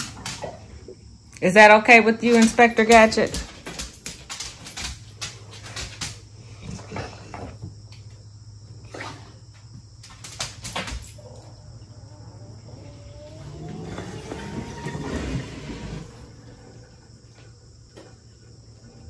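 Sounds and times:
dishwasher humming: 0:00.0 - 0:06.5, 0:12.5 - 0:19.0.

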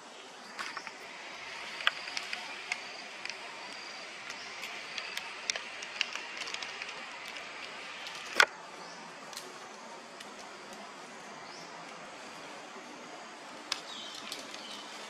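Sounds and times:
steady high hiss: 0:00.0 - 0:15.0
sharp clicks and ticks: 0:01.7 - 0:08.5.

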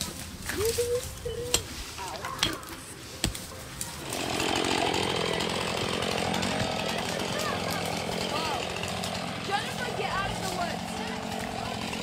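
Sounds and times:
axe chopping into roots: 0:01.5 - 0:04.3
chainsaw running: 0:03.8 - 0:12.0.

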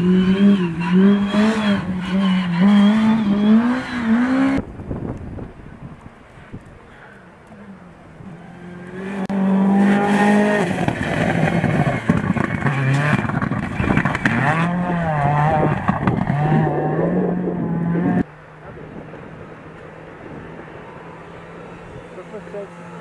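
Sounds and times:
rally car engine revving: 0:00.0 - 0:04.6, 0:08.2 - 0:18.3.

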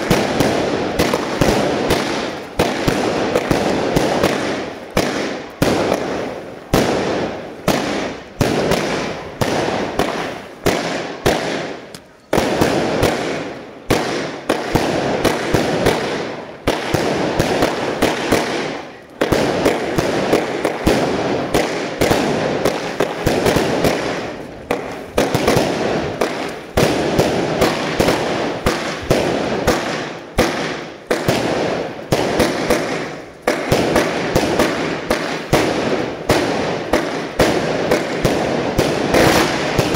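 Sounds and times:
fireworks bangs: 0:00.0 - 0:39.9.

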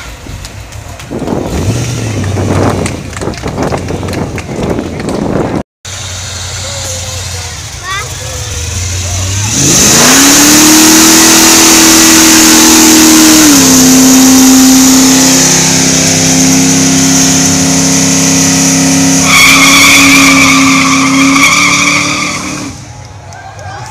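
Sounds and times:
car engine at high revs: 0:01.2 - 0:22.9
high tyre squeal: 0:08.6 - 0:22.8.

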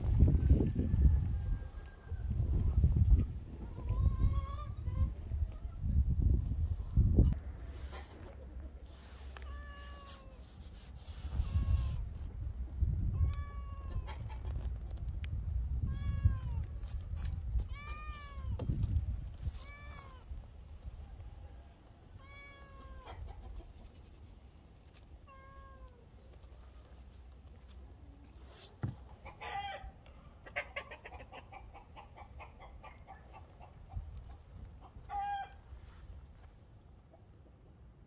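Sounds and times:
cat meowing: 0:09.4 - 0:10.4, 0:13.2 - 0:14.1, 0:15.8 - 0:16.6, 0:19.6 - 0:20.2, 0:22.2 - 0:23.2, 0:25.2 - 0:26.0
chicken clucking: 0:13.9 - 0:14.9, 0:22.9 - 0:24.0, 0:29.1 - 0:35.6.

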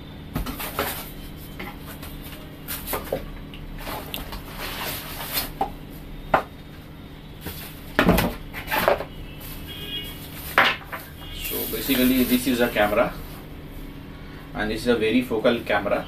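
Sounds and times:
packaging rustling and scraping: 0:00.4 - 0:03.2, 0:03.8 - 0:05.6, 0:07.5 - 0:13.1.

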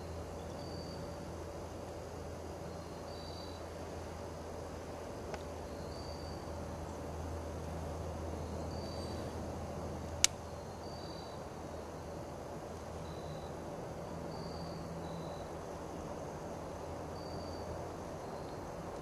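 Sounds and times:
steady low hum: 0:00.0 - 0:19.0
sharp click: 0:10.2 - 0:10.4.

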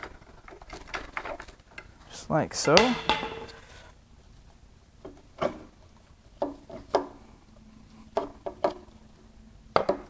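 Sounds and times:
dull metal knocks and clunks: 0:02.6 - 0:03.7.

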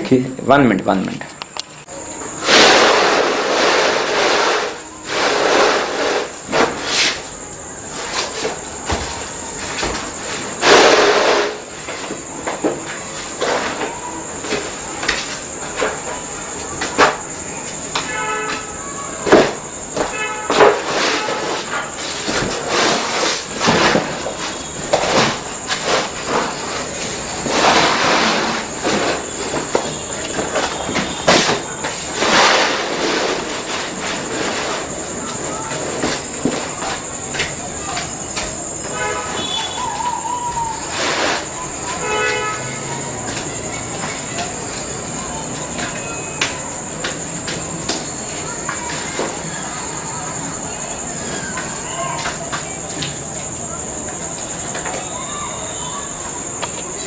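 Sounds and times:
vinyl flooring rustling and swishing: 0:02.4 - 0:39.9, 0:40.6 - 0:45.8.

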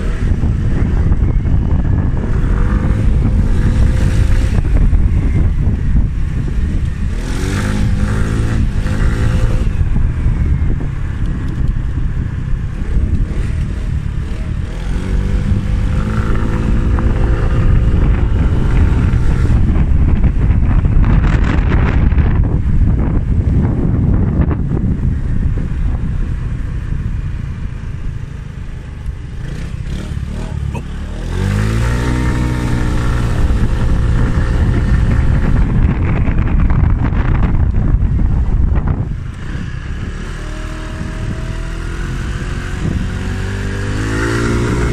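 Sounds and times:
wind rumble on microphone: 0:00.0 - 0:44.9
scooter engine revving: 0:28.5 - 0:37.4, 0:39.0 - 0:44.9.

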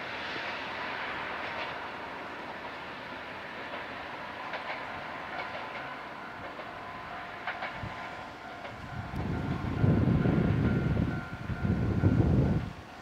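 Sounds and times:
diesel railcar running: 0:00.0 - 0:13.0
wheels clicking over rail joints: 0:03.7 - 0:13.0.

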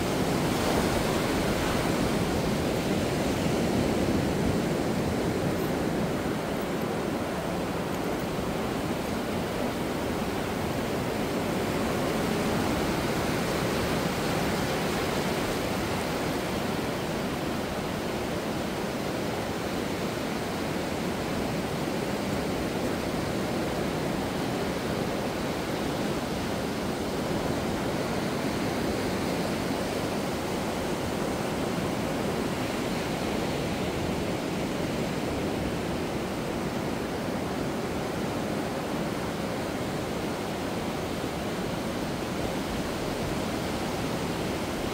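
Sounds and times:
ocean surf on beach: 0:00.0 - 0:44.9.

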